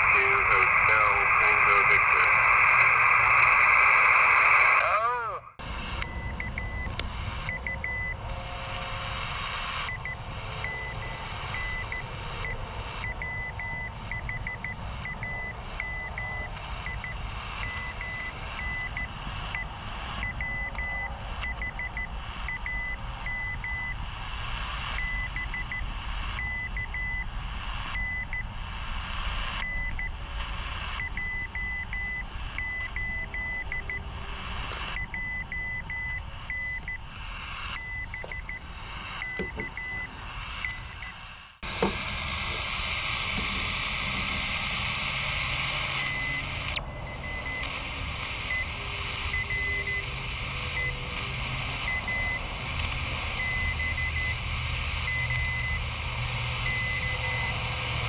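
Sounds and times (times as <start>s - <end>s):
radio static hiss: 0.0s - 58.0s
morse code beeping tone: 6.0s - 8.2s, 9.9s - 24.0s, 31.0s - 34.0s, 34.9s - 37.0s, 37.7s - 41.2s, 46.0s - 47.6s, 48.4s - 50.1s.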